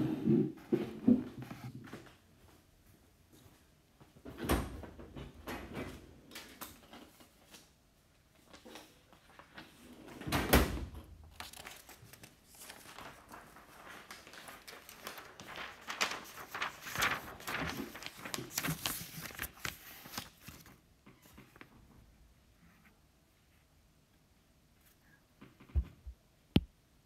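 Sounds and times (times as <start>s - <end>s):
rustling: 11.3s - 21.7s.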